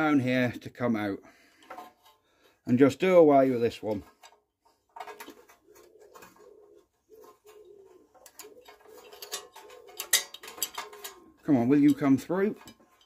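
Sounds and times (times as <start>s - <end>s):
wire clicking and rubbing: 3.8s - 13.0s
pigeon cooing: 5.0s - 12.0s.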